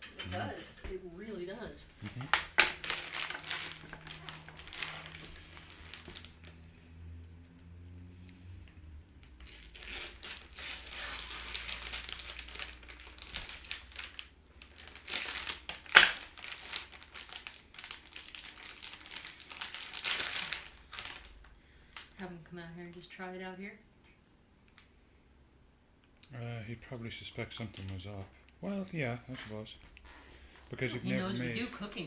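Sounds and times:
plastic bag crinkling: 2.3 - 6.6, 9.4 - 22.2.

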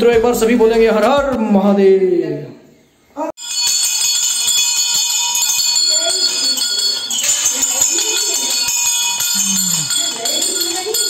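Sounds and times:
brass bells ringing: 3.4 - 11.0.

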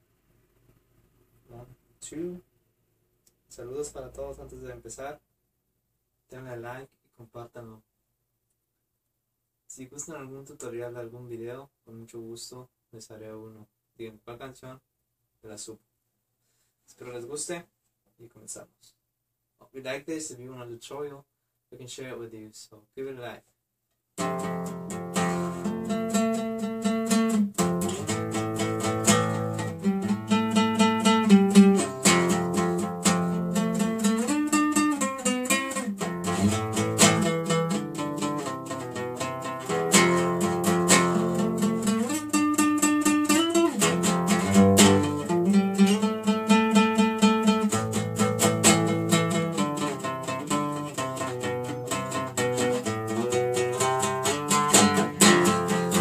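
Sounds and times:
classical guitar playing: 24.2 - 56.0.

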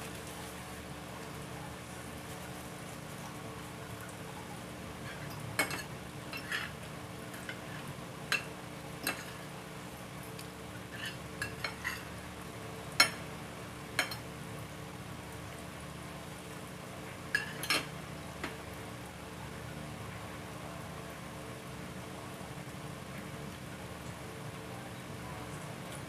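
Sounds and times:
cutlery clinking on a plate: 8.3 - 9.4, 11.0 - 12.1, 13.0 - 13.2, 17.4 - 17.9.

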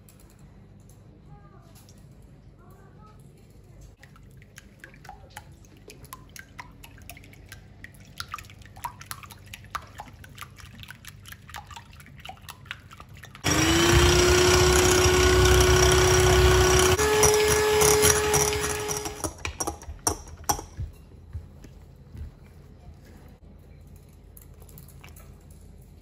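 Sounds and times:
electric hand mixer whirring: 13.4 - 19.4.

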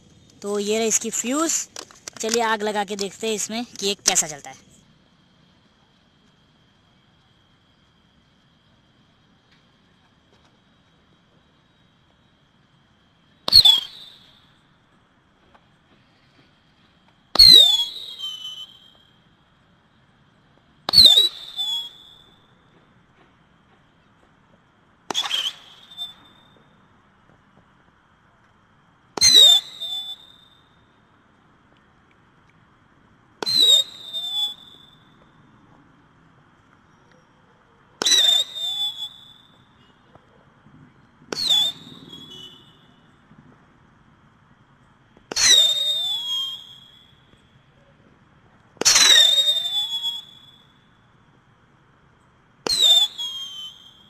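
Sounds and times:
firework high whistle: 0.4 - 4.6, 11.3 - 14.7, 16.0 - 19.4, 20.9 - 22.7, 25.1 - 26.8, 29.2 - 31.0, 33.4 - 35.3, 38.0 - 40.1, 41.3 - 43.2, 45.3 - 47.7, 48.8 - 51.1, 52.6 - 54.0
firework pop: 25.1 - 26.3.

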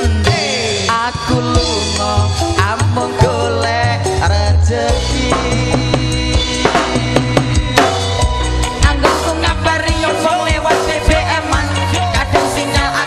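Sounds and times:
live band music: 0.0 - 13.0
person singing: 0.0 - 13.0
drum beat: 4.9 - 13.0.

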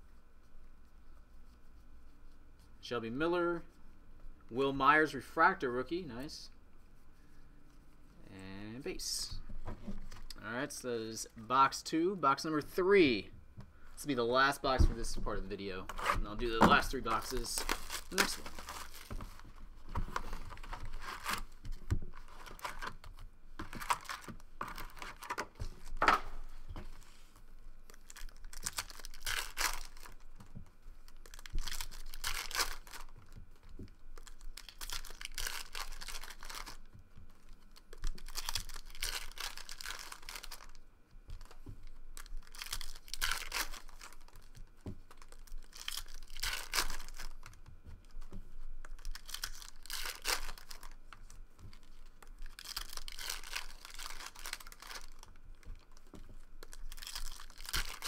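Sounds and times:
foil wrappers tearing and crinkling: 15.9 - 19.6, 20.2 - 26.0, 27.8 - 30.3, 31.0 - 48.2, 48.8 - 58.0.

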